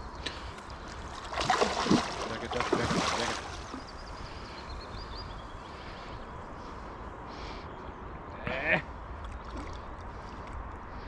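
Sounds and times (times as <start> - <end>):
water noise: 0.0 - 6.2, 8.8 - 11.0
low wind: 0.0 - 11.0
fish splashing at surface: 1.2 - 3.8.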